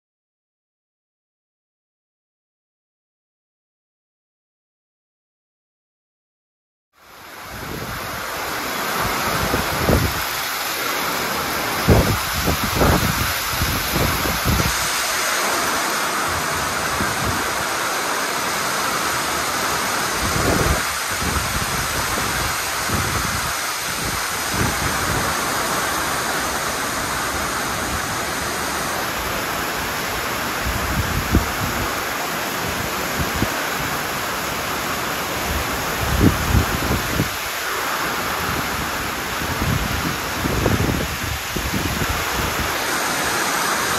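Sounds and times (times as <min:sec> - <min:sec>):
heavy rain: 0:07.0 - 0:43.9
wind buffeting microphone: 0:09.0 - 0:10.4, 0:11.7 - 0:15.1, 0:20.1 - 0:25.8, 0:29.8 - 0:32.0, 0:35.4 - 0:37.4, 0:38.4 - 0:42.9.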